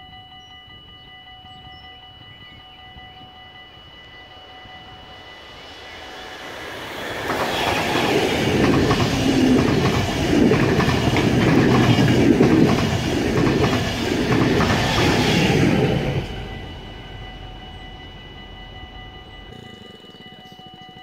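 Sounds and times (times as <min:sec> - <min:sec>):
train passing at speed: 0:00.0 - 0:21.0
wheels clacking over rail joints: 0:07.0 - 0:16.3.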